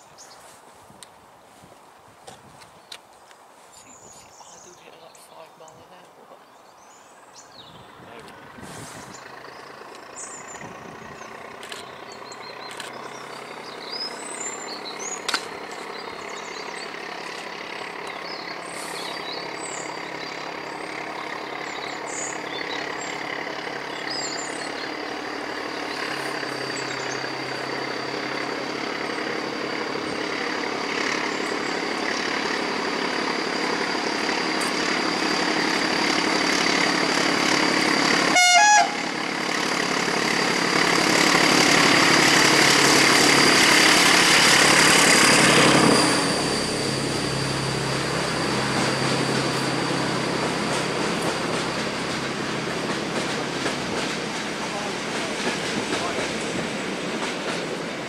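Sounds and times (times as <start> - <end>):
diesel locomotive engine: 0.0 - 58.0
birds chirping: 2.8 - 37.4
train horn blast: 38.2 - 39.2.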